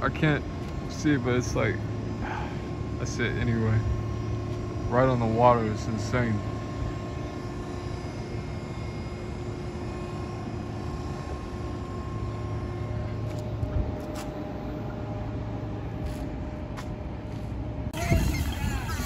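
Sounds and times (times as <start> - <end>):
distant machinery hum: 0.0 - 19.0.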